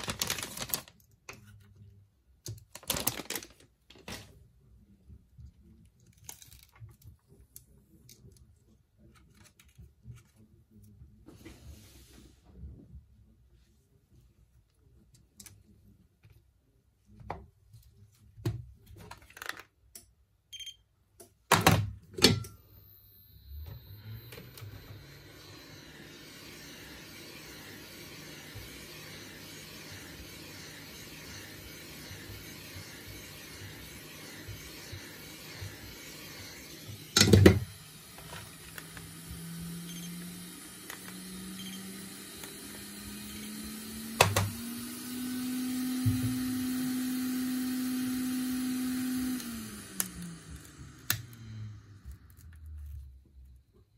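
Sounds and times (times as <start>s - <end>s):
small electric motor humming: 23.1s - 52.9s.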